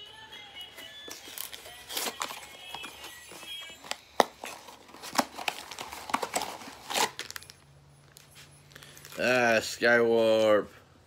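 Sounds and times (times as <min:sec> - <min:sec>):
plastic packaging crinkling and tearing: 0:01.0 - 0:07.6.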